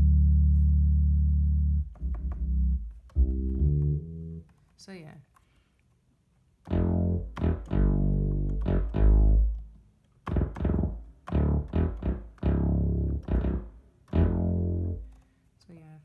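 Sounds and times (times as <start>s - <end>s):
synth bass notes: 0.0s - 4.4s, 6.7s - 9.7s, 10.3s - 15.1s.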